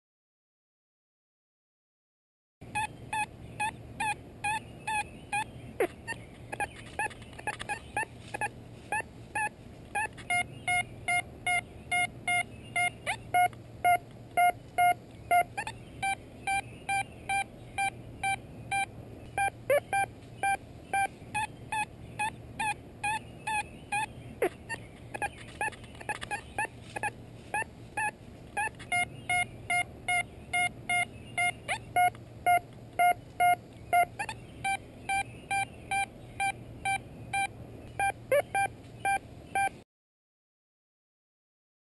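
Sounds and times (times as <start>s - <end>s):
metal detector beeps: 2.7s - 5.4s, 6.5s - 24.1s, 27.0s - 39.8s.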